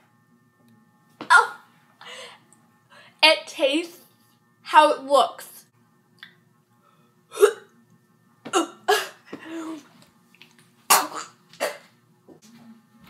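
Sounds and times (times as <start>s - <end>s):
girl gagging and retching: 10.9s - 11.9s.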